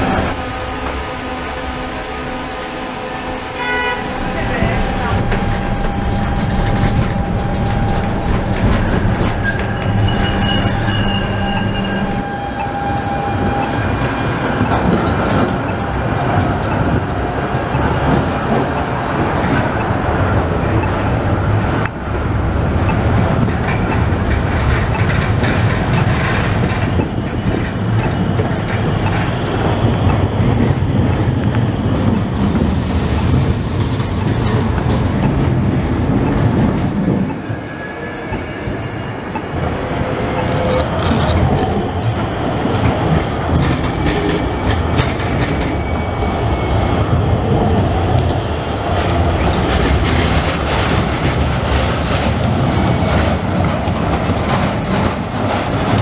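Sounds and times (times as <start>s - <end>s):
tram motor hum: 0.0s - 56.0s
trams rolling past: 0.0s - 56.0s
high wheel squeal: 4.1s - 33.0s, 40.0s - 47.4s.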